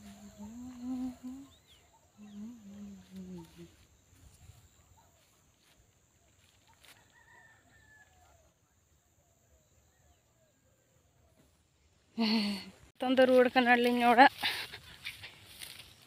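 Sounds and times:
faint distant bird chirps: 0:00.0 - 0:05.4.

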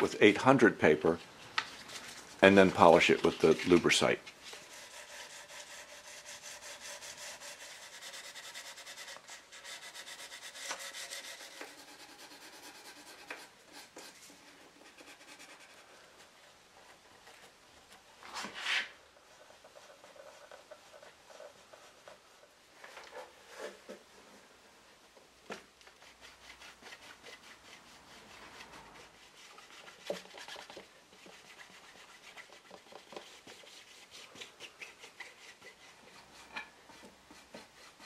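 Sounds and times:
sandpaper rubbing on wood: 0:01.7 - 0:15.9, 0:25.9 - 0:38.0
cloth pad polishing wood: 0:01.9 - 0:16.0, 0:18.6 - 0:22.7, 0:25.9 - 0:38.0
loud scrape: 0:18.3 - 0:19.0.

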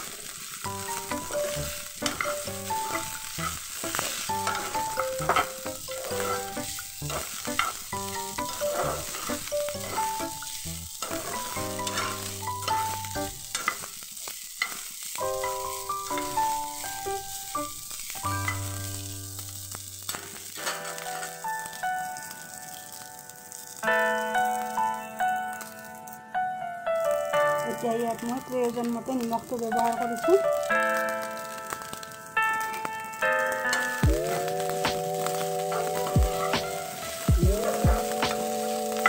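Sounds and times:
spatula scraping a wok: 0:00.0 - 0:15.2
light sizzle of frying: 0:00.0 - 0:39.0
soft background music: 0:00.7 - 0:13.5, 0:15.2 - 0:20.1, 0:20.8 - 0:39.0.

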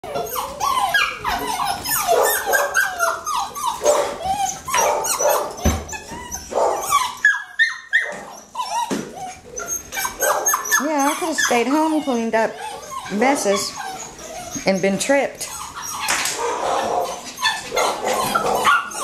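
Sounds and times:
puppies barking and yipping: 0:00.0 - 0:19.0.

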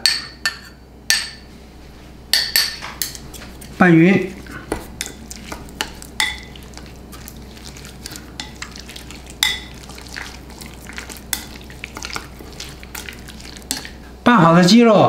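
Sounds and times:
chopsticks stirring wet marinade: 0:02.4 - 0:14.2.

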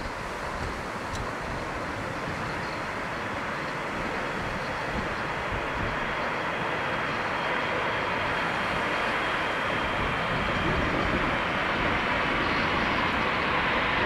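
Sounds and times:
jet engines roaring: 0:00.0 - 0:14.0.

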